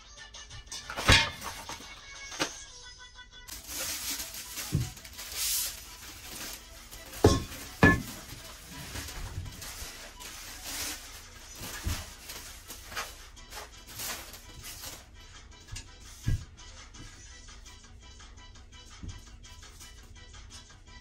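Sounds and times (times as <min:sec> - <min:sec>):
plastic wrapping crinkling: 0:03.5 - 0:15.1
metal frames knocking on wooden floor: 0:07.2 - 0:08.4.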